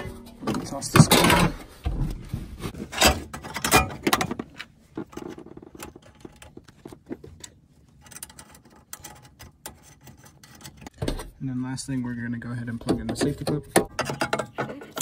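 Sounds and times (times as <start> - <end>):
hands handling plastic and metal parts: 2.6 - 11.4.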